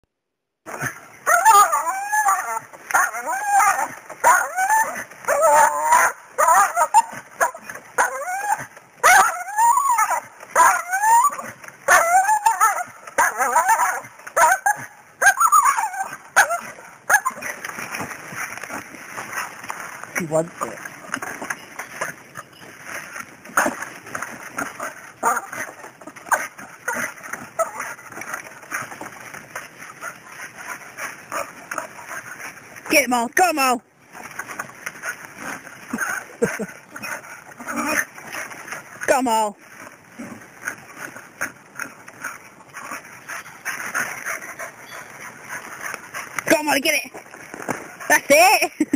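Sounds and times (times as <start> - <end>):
dog whining and yelping: 0.7 - 17.7, 23.6 - 29.0
brush rustling: 0.7 - 48.9
branch cracking: 16.1 - 32.9.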